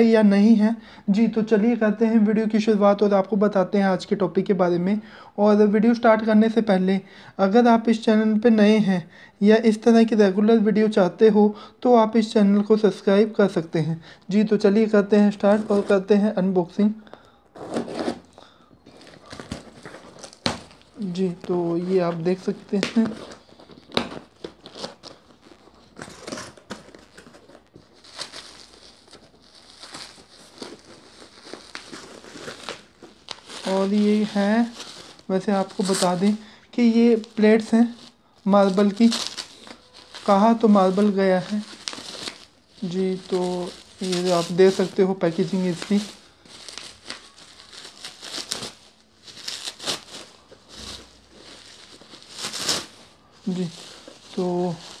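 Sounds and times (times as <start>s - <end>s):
bubble wrap crinkling: 12.1s - 55.0s.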